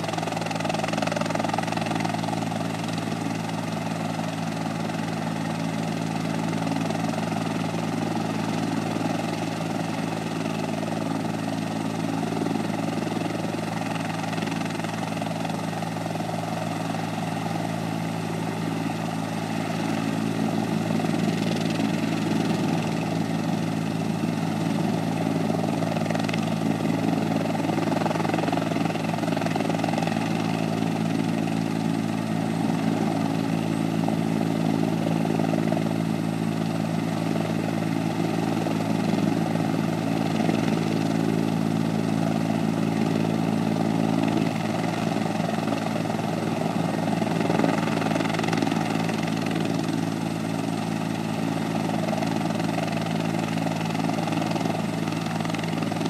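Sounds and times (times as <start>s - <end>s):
helicopter idling hum: 0.0s - 56.0s.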